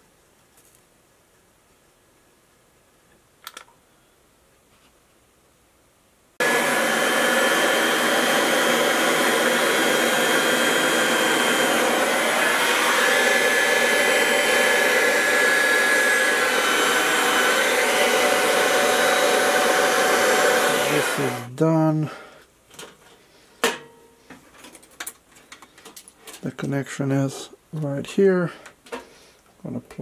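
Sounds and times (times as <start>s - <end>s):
hot-air gun blowing: 6.4s - 22.0s.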